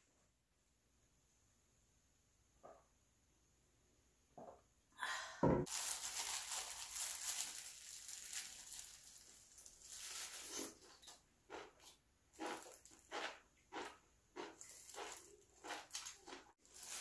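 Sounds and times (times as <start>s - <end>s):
heavy thump: 5.4s - 5.7s
plastic glove crinkling: 5.7s - 11.7s, 14.6s - 17.0s.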